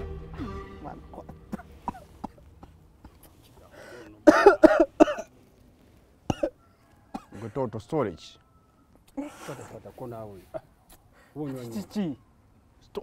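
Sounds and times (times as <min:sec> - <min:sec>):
man coughing: 0:00.4 - 0:03.2, 0:04.2 - 0:05.3, 0:06.3 - 0:07.5.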